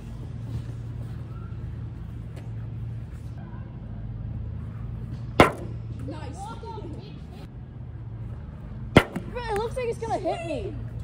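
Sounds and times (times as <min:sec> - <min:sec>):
distant road traffic hum: 0:00.0 - 0:11.0
plastic ball striking bat: 0:05.4 - 0:05.8, 0:09.0 - 0:09.4.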